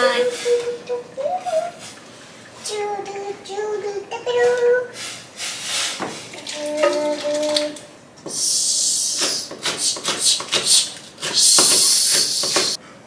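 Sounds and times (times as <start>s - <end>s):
high hiss: 8.2s - 12.8s
knife chopping on wooden board: 9.2s - 12.8s.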